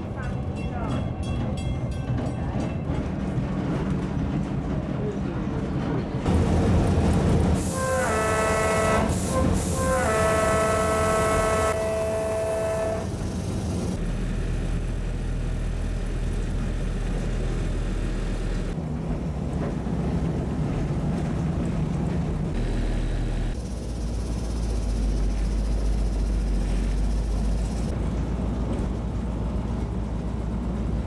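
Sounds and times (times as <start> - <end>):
train engine rumbling: 0.0 - 31.0
train horn blast: 7.6 - 13.2.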